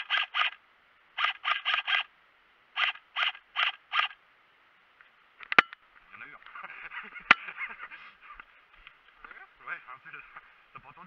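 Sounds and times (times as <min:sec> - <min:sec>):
airsoft rifle shots: 0:00.0 - 0:00.6, 0:01.2 - 0:02.1, 0:02.8 - 0:04.2.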